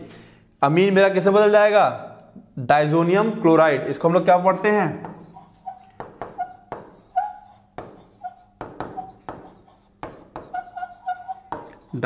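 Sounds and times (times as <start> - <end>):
pen squeaking across glass: 5.0 - 12.0.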